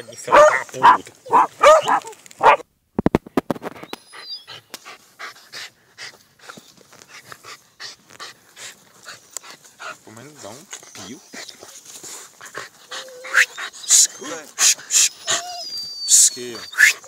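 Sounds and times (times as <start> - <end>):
dog panting: 4.8 - 16.6.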